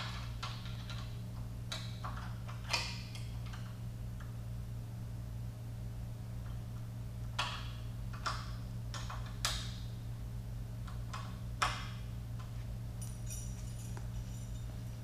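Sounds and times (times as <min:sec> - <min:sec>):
steady low hum: 0:00.0 - 0:15.0
high metallic jingle: 0:13.0 - 0:15.0.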